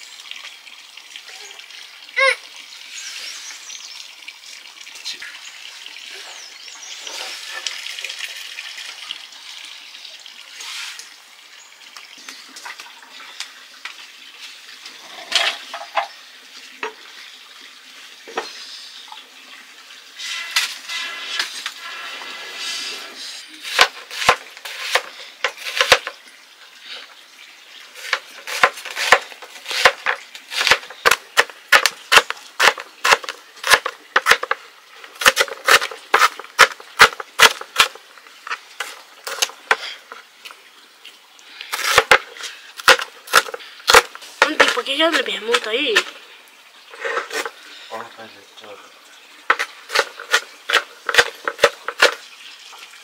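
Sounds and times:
water running: 0.0 - 53.0
knife chopping on plastic board: 25.6 - 26.0.

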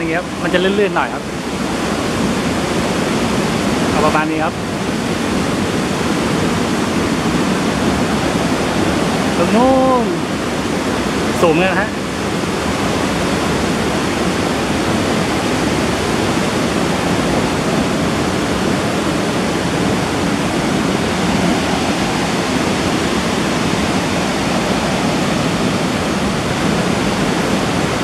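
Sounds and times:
waterfall rushing: 0.0 - 28.0.

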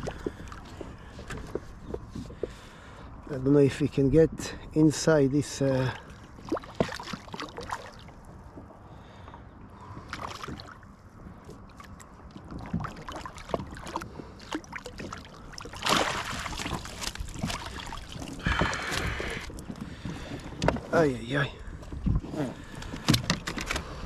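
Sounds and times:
fish thrashing and water splashing: 0.0 - 2.4, 5.8 - 8.8, 9.8 - 21.0
wind on microphone: 21.6 - 24.0.

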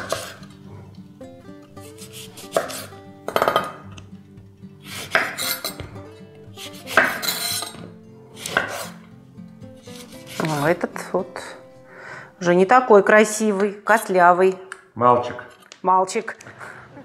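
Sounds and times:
knife cutting lemons: 0.0 - 0.6, 1.8 - 4.1, 4.8 - 9.1, 9.8 - 10.8
knife striking wooden board: 2.4 - 3.8, 5.0 - 6.0, 6.6 - 7.8, 8.4 - 8.9.

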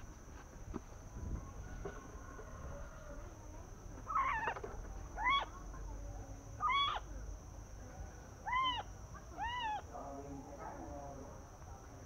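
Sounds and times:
bird hooting calls: 4.1 - 4.6.

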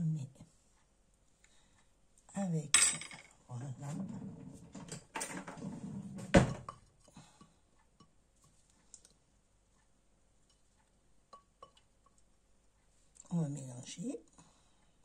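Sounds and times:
utensils scraping and clinking bowl: 11.3 - 12.2.

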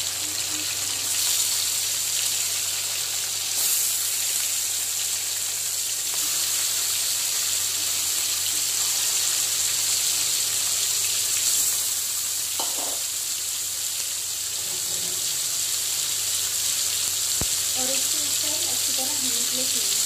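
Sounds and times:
fish sizzling in hot oil: 0.0 - 20.0.

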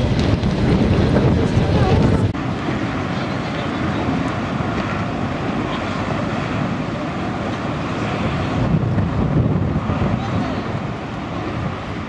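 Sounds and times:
vehicle rumbling in motion: 0.0 - 12.0.

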